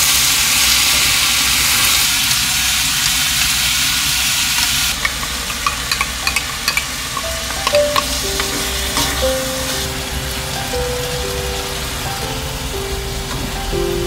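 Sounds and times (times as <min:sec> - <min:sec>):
shrimp and onion sizzling: 0:00.0 - 0:14.0
wooden spatula clicking on pan: 0:04.6 - 0:09.2
soft background music: 0:07.1 - 0:14.0.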